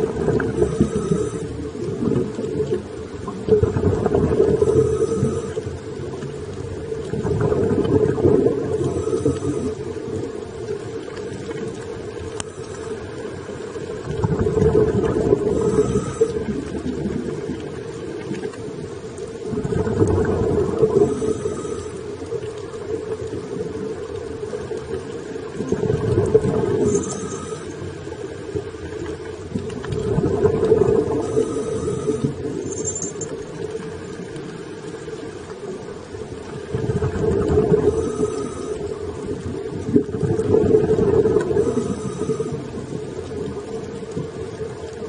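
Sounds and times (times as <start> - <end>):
diver breathing through regulator: 0.4 - 1.8, 4.5 - 5.8, 8.8 - 10.0, 15.4 - 16.7, 20.7 - 22.2, 26.8 - 28.1, 30.9 - 32.6, 37.8 - 39.1, 41.4 - 42.9.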